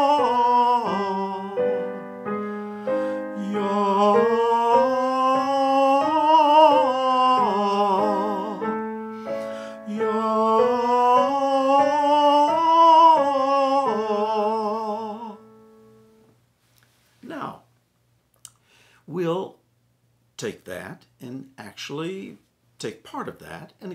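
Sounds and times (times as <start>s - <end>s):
man singing vocal exercise: 0.0s - 2.1s, 3.0s - 8.8s, 9.6s - 15.4s
piano chords: 0.0s - 16.3s.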